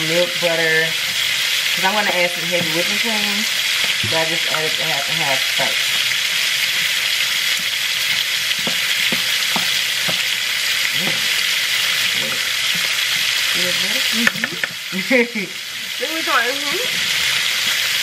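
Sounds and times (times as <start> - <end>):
chicken sizzling in a pan: 0.0 - 18.0
spoon mashing potatoes in a pot: 6.7 - 10.3.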